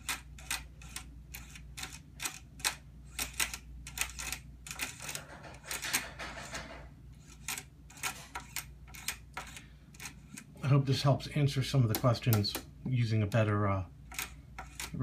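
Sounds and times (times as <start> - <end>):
knobs clicking through detents: 11.6 - 13.4.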